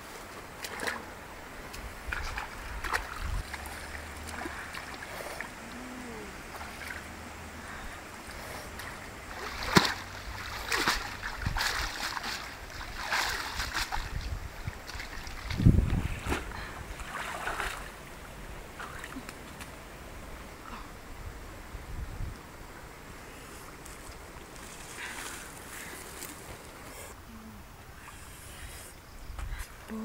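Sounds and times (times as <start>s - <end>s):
stream water sloshing and splashing: 0.0s - 20.8s, 23.5s - 27.1s.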